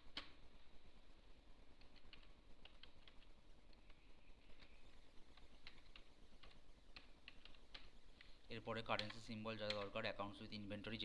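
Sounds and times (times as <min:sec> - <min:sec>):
computer keyboard typing: 0:01.8 - 0:07.9, 0:08.8 - 0:10.1.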